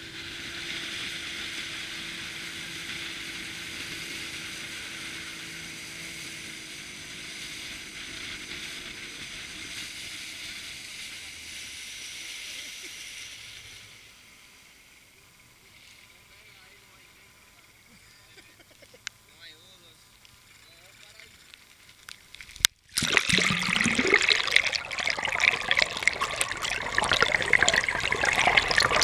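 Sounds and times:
water rushing along hull: 0:00.0 - 0:14.7, 0:22.9 - 0:29.0.

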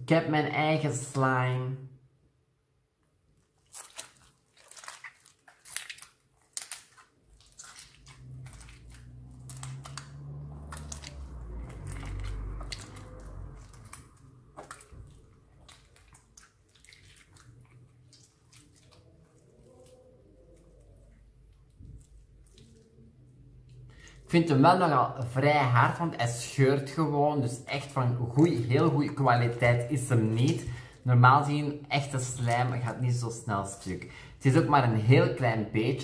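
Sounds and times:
low rumble: 0:08.1 - 0:15.6.

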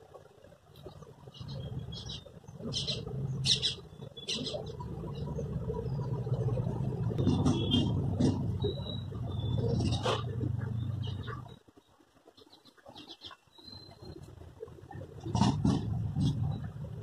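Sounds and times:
steady low hum: 0:00.0 - 0:12.0
small birds chirping: 0:00.7 - 0:15.3.

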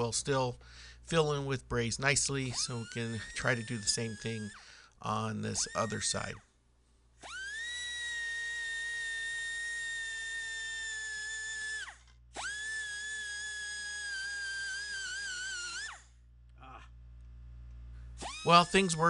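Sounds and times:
die grinder whining: 0:02.6 - 0:04.6, 0:07.2 - 0:16.1, 0:18.2 - 0:19.0.

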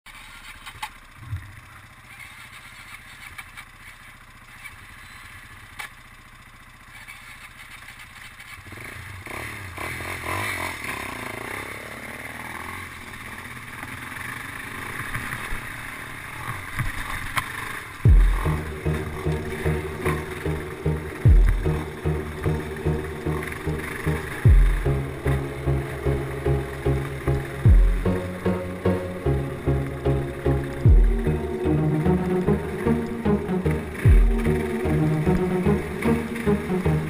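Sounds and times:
dirt bike engines idling: 0:00.1 - 0:37.0
dirt bike riding on trail: 0:00.1 - 0:37.0
loud low thump: 0:18.1 - 0:18.5, 0:21.3 - 0:21.7, 0:24.4 - 0:24.8, 0:27.7 - 0:28.1, 0:30.9 - 0:31.2.

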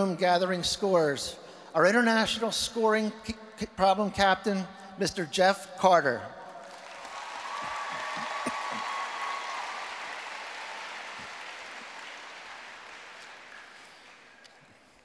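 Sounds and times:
audience applause: 0:06.6 - 0:15.0.

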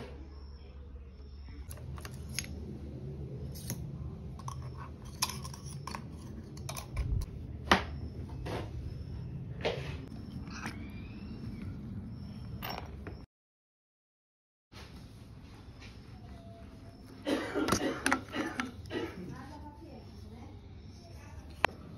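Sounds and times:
low steady hum: 0:00.2 - 0:13.2
pump parts clicking and rattling: 0:04.4 - 0:07.3.

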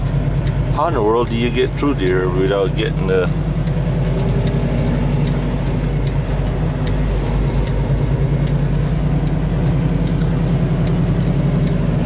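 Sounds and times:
diesel truck engine droning: 0:00.0 - 0:12.0
light ticking: 0:00.0 - 0:12.0.

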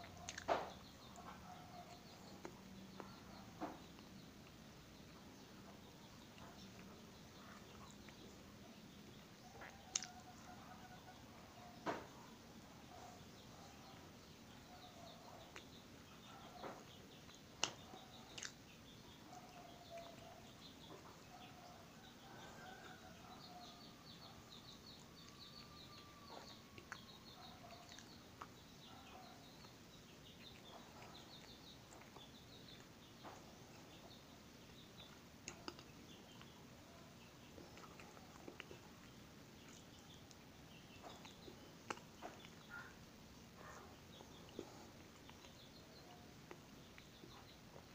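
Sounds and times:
person chewing bread: 0:00.0 - 0:04.6, 0:09.1 - 0:10.9, 0:16.4 - 0:29.8, 0:30.4 - 0:34.0, 0:35.1 - 0:36.6, 0:37.5 - 0:47.9
faint birds chirping: 0:00.0 - 0:47.9
mouth clicks from eating: 0:09.6 - 0:10.2, 0:17.6 - 0:18.6.

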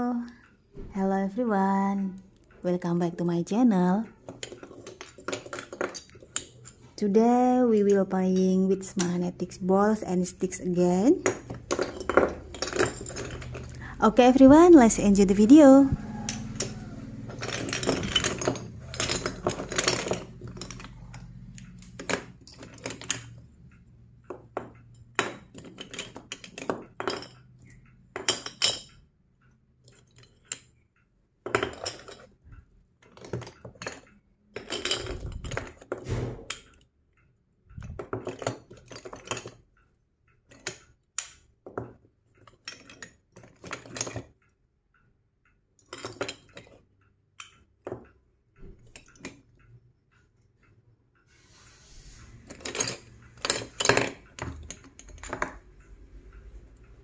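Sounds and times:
magnetic toy pieces clicking: 0:37.7 - 0:44.6.

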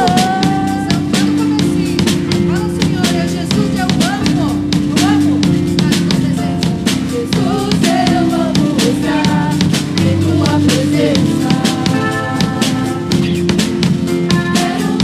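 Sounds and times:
woman singing into a microphone: 0:00.0 - 0:13.4, 0:14.2 - 0:15.0
drum kit: 0:00.0 - 0:15.0
guitars: 0:00.0 - 0:15.0.

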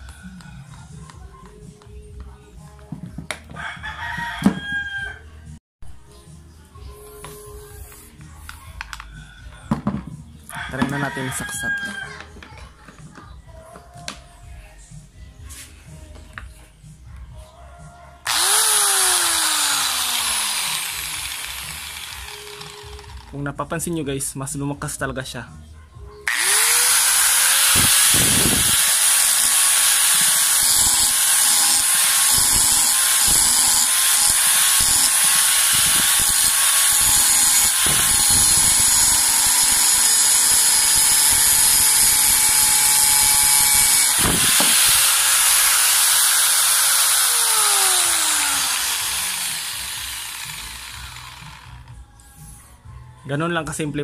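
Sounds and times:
angle grinder running: 0:18.3 - 0:23.4, 0:26.3 - 0:51.9.

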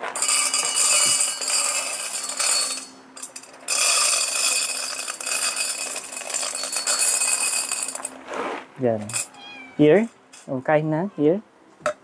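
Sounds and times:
kibble pouring into metal bowl: 0:00.2 - 0:08.1.

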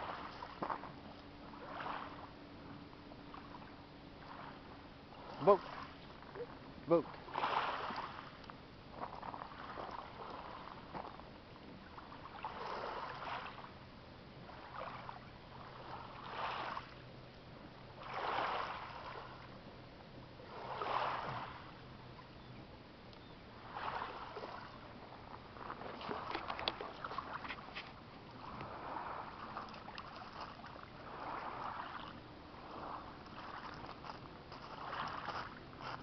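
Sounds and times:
small waves lapping on pebbles: 0:00.0 - 0:02.4, 0:03.2 - 0:13.8, 0:14.4 - 0:17.1, 0:17.9 - 0:19.6, 0:20.4 - 0:22.3, 0:23.6 - 0:36.0.

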